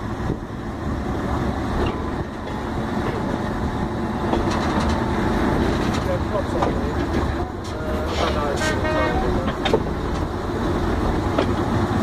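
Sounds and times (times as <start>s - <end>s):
diesel locomotive engine: 0.0s - 12.0s
wagon rumbling along track: 0.0s - 12.0s.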